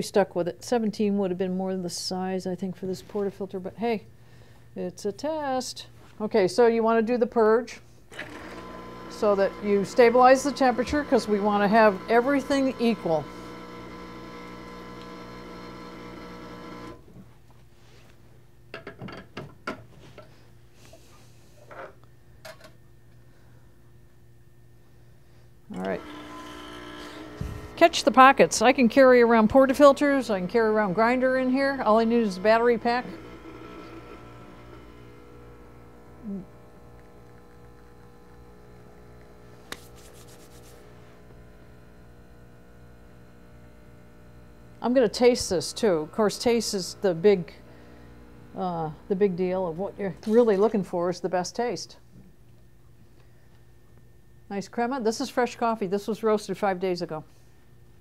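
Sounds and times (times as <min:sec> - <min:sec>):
espresso machine pump buzzing: 0:08.1 - 0:17.0, 0:25.7 - 0:50.6.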